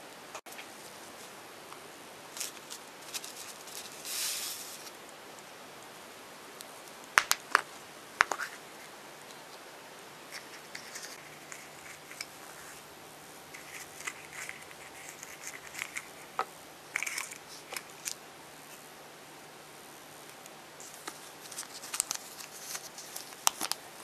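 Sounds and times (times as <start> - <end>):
wrapper crinkling: 2.3 - 5.0, 13.5 - 18.2, 20.8 - 23.9.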